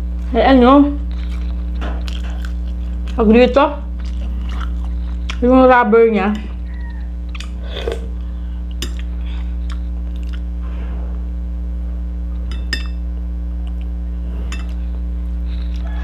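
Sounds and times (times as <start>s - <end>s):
low electrical hum: 0.0s - 16.0s
soft chewing: 1.0s - 3.2s, 3.9s - 5.4s, 6.4s - 10.5s, 14.5s - 16.0s.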